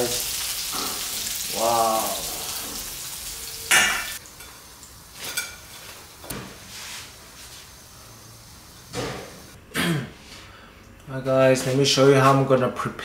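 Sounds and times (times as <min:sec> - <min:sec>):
oil sizzling: 0:00.0 - 0:09.6.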